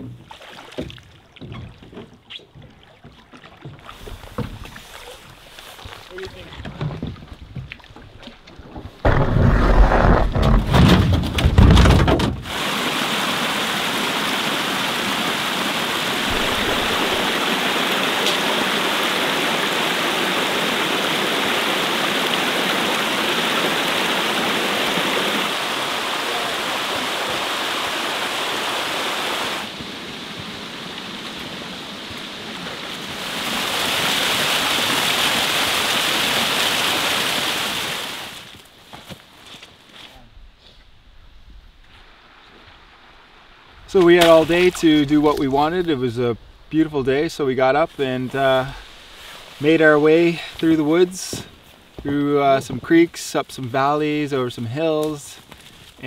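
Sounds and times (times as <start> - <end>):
stream water rushing: 12.4 - 38.8, 41.9 - 55.8
loud low rumbling: 16.3 - 17.6.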